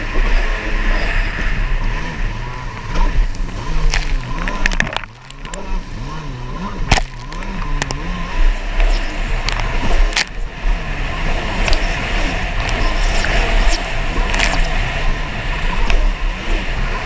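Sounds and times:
jet ski engine revving: 0.0 - 17.0
hull slapping water: 1.2 - 17.0
hiss of spray and wind: 7.5 - 17.0.

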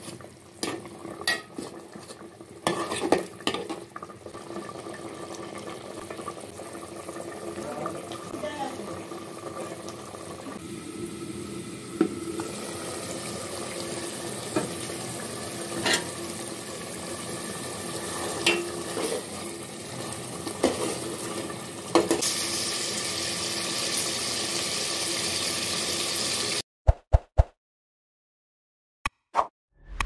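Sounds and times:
curry bubbling and sizzling in a pot: 0.0 - 26.6.

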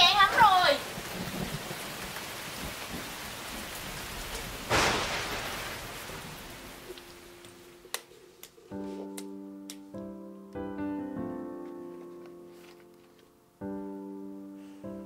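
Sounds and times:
thunder clap: 0.0 - 7.7
steady rain: 0.0 - 9.0.

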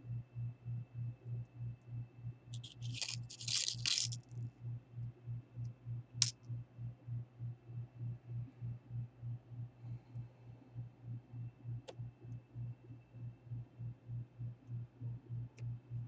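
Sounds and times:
plastic parts rustling and scraping: 2.6 - 4.2.

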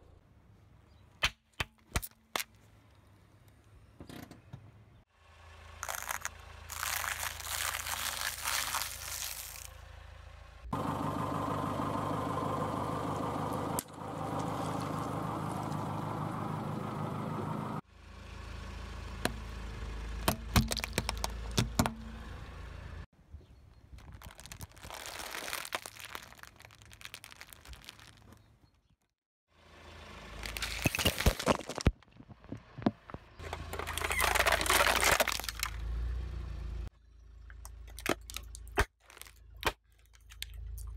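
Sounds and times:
car engine running: 5.2 - 23.1, 29.6 - 38.6
plastic bag crackling: 5.8 - 9.7, 24.0 - 28.4, 30.4 - 32.0, 33.8 - 35.7
plastic cube cracking under tyre: 5.8 - 9.7, 20.2 - 21.9, 24.0 - 28.4, 30.4 - 35.8.

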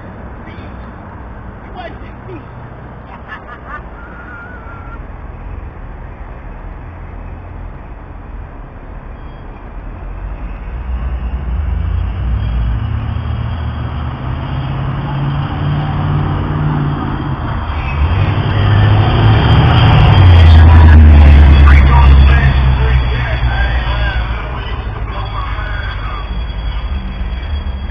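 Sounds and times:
loud car exhaust rumble: 3.6 - 27.9
car stereo bass: 19.8 - 27.9.

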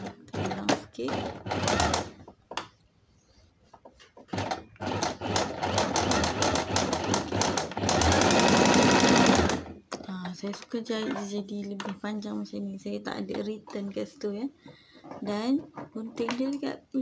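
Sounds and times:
sewing machine stitching: 0.0 - 2.3, 4.3 - 9.8.

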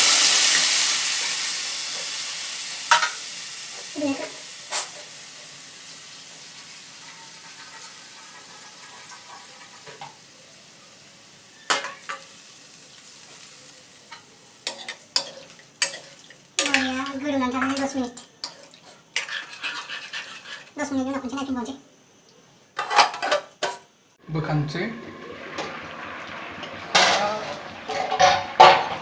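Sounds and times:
curry sizzling in a pan: 0.0 - 21.7, 22.8 - 29.0
metal ladle scraping a pan: 7.0 - 10.1, 14.1 - 20.8, 25.4 - 29.0.

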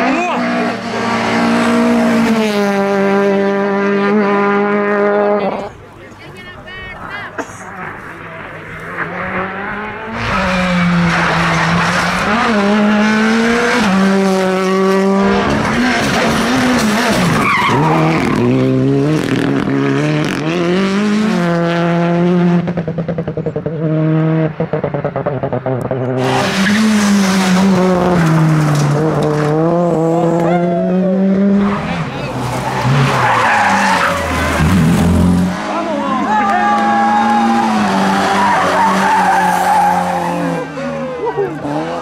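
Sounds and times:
rally car engines revving: 0.0 - 6.2, 7.4 - 42.0.

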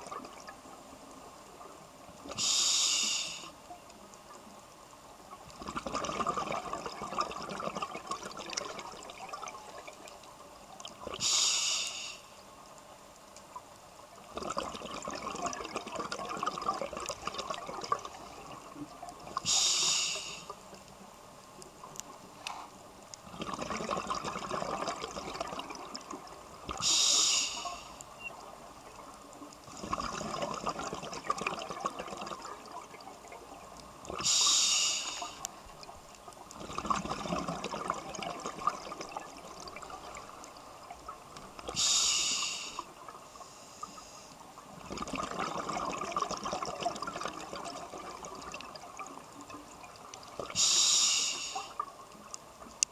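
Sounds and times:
regulator breathing hiss: 2.3 - 3.6, 11.2 - 12.4, 19.4 - 20.6, 26.8 - 28.1, 34.2 - 35.6, 41.7 - 44.4, 50.5 - 51.8
bubbles rising underwater: 5.5 - 10.2, 14.2 - 19.5, 23.3 - 26.8, 29.7 - 34.3, 35.7 - 41.8, 44.7 - 50.6.

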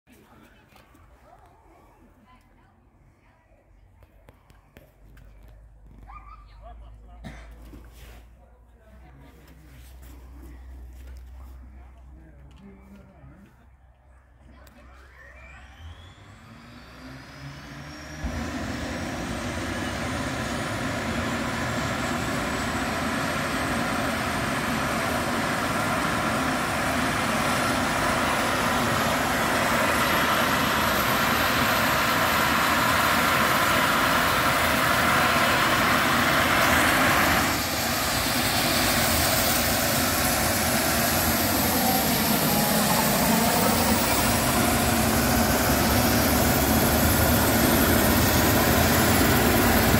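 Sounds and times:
helicopter engine and rotor noise: 14.7 - 49.9
helicopter turbine whine: 15.1 - 49.9.

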